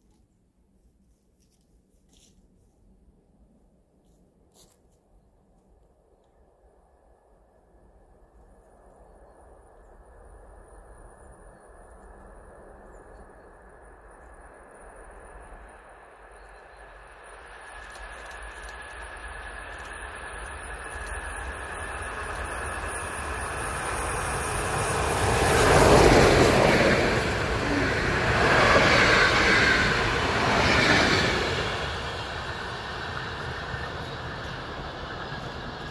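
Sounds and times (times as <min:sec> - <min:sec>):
steam locomotive passing at speed: 0:07.8 - 0:35.9.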